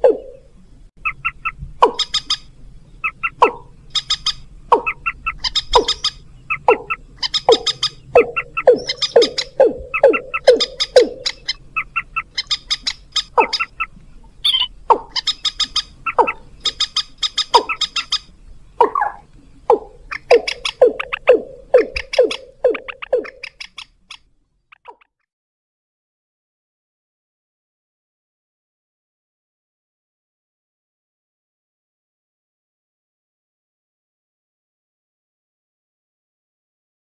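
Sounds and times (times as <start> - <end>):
downward-sliding bird calls: 1.0 - 25.1
rapid ticking bird trills: 1.0 - 25.2.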